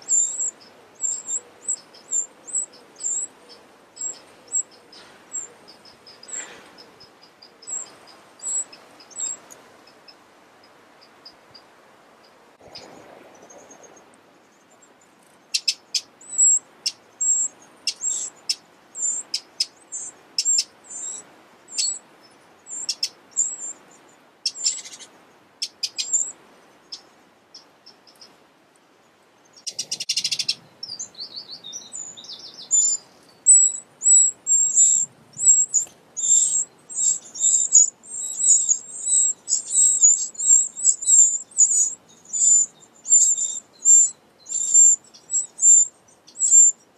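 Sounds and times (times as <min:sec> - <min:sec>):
nestlings begging cheeps: 0:00.0 - 0:09.6, 0:15.5 - 0:22.0, 0:22.7 - 0:23.8, 0:24.5 - 0:26.3, 0:29.6 - 0:46.8.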